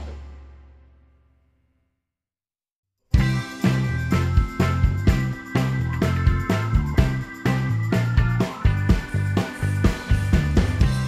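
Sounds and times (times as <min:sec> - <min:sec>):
background music: 0:03.2 - 0:11.0.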